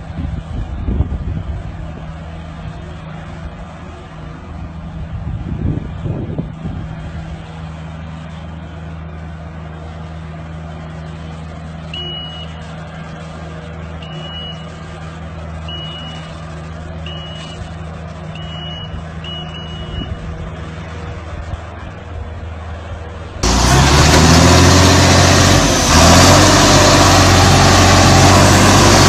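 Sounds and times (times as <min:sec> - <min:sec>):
diesel engine running: 0:00.0 - 0:29.0
high-pitched back-up alarm beeps: 0:11.9 - 0:12.6, 0:14.0 - 0:14.7, 0:15.7 - 0:16.3, 0:17.0 - 0:17.7, 0:18.3 - 0:20.2.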